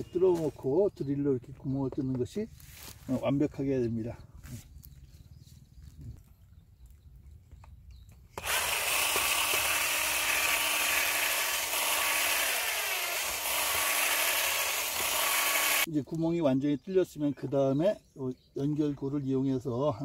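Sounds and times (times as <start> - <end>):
cordless drill boring plastic pipe: 8.4 - 15.9.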